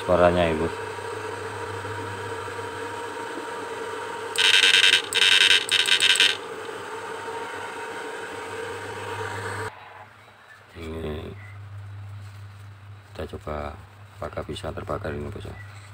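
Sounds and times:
loud electric buzz bursts: 0.0s - 9.7s
inverter humming: 0.0s - 9.9s, 10.5s - 15.9s.

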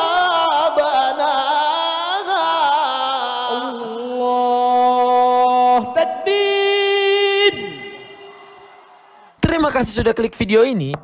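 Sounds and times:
man reciting melodically: 0.0s - 8.1s.

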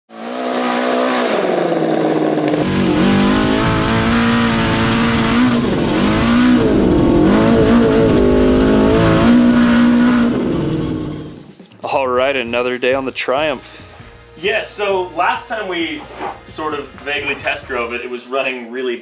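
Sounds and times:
snowmobile engine revving: 0.1s - 11.4s
rough low rumble: 2.5s - 11.4s.

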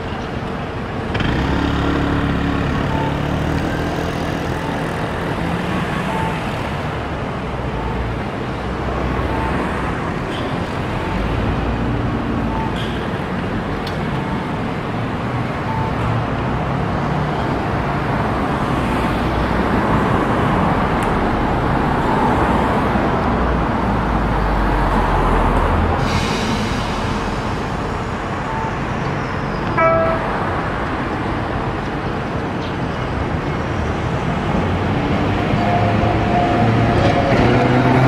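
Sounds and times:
tram running gear humming: 0.0s - 26.0s, 26.6s - 38.0s
road traffic noise: 0.0s - 38.0s
short beeps: 2.8s - 3.3s, 6.0s - 6.5s, 29.7s - 30.7s.

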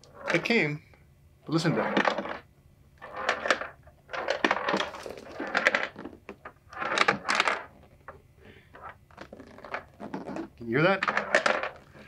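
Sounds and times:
objects rattling inside cardboard box: 3.0s - 7.8s.

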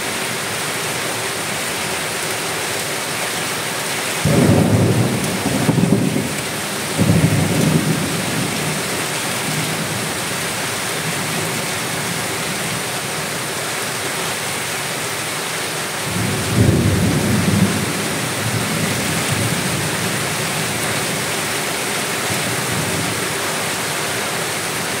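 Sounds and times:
steady rain pouring: 0.0s - 25.0s
low rolls of thunder: 4.2s - 8.8s, 16.1s - 19.9s.

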